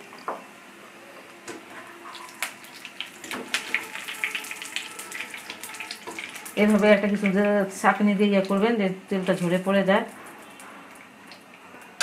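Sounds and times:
food sizzling in frying oil: 0:01.6 - 0:11.5
oil crackling and popping: 0:02.1 - 0:07.4.

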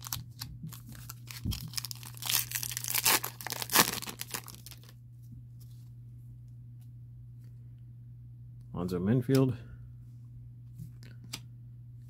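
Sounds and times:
foil wrapper tearing and crinkling: 0:00.0 - 0:04.9.

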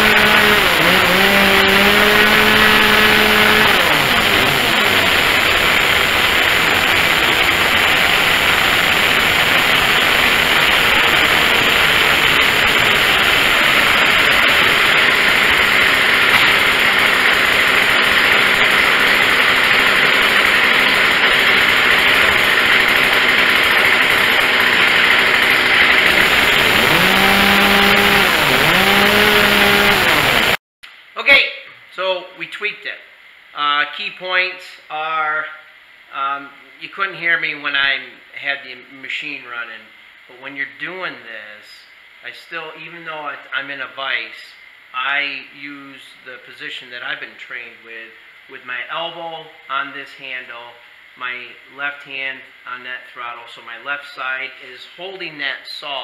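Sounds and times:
chainsaw revving: 0:00.0 - 0:30.6.

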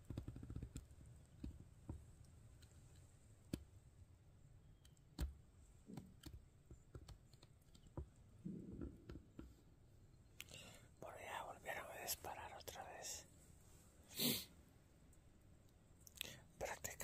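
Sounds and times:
faint clicks and taps: 0:00.0 - 0:03.7, 0:04.8 - 0:09.6.

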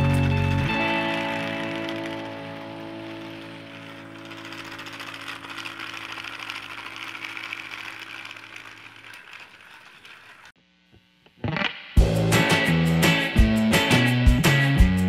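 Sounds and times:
fast gear clicking: 0:00.0 - 0:10.6
toy train motor whirr: 0:00.0 - 0:10.6.

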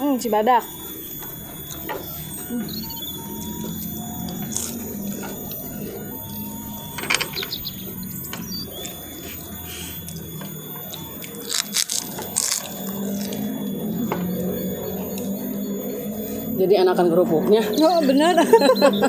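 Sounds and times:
steady low hum: 0:00.0 - 0:19.0
crackers crunching: 0:11.2 - 0:13.5.

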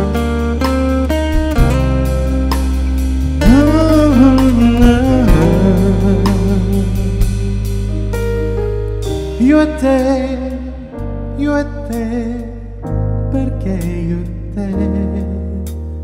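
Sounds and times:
drum kit with cymbal hits: 0:00.0 - 0:10.6
sustained bass: 0:00.0 - 0:16.0
man singing into a microphone: 0:03.4 - 0:07.8, 0:09.3 - 0:16.0.

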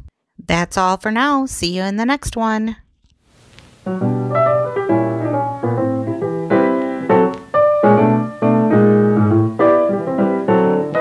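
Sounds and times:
piano playing chords: 0:03.8 - 0:11.0.

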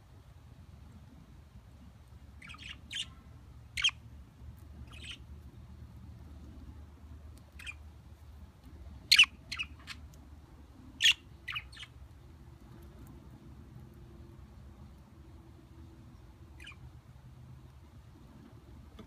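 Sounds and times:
budgerigar chirps: 0:02.4 - 0:03.2, 0:03.8 - 0:04.0, 0:04.8 - 0:05.2, 0:07.6 - 0:07.8, 0:09.1 - 0:10.0, 0:11.0 - 0:11.9, 0:16.6 - 0:16.8.

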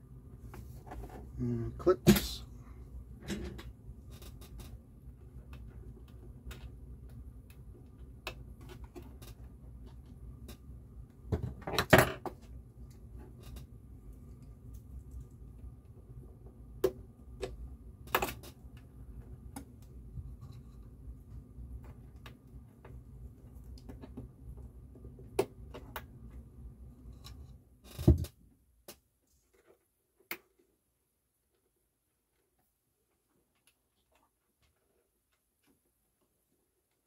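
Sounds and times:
low background hum: 0:00.0 - 0:28.9.

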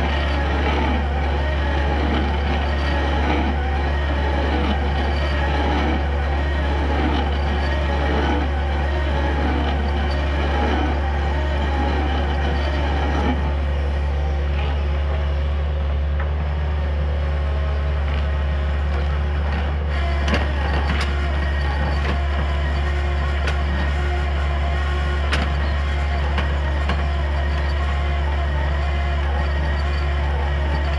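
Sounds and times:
hydraulic drill boring into stump: 0:00.0 - 0:13.8
diesel engine running under load: 0:00.0 - 0:30.9.

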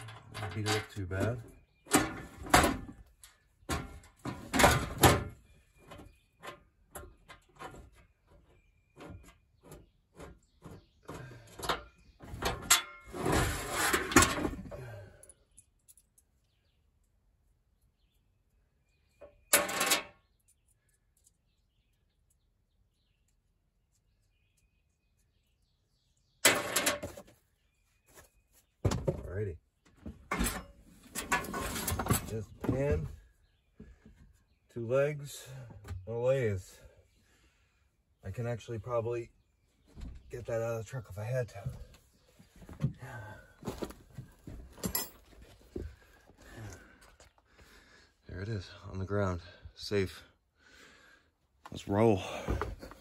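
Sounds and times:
straps and metal parts rattling: 0:00.0 - 0:17.2, 0:19.2 - 0:22.6, 0:26.4 - 0:34.3, 0:40.0 - 0:47.6, 0:51.7 - 0:53.0.

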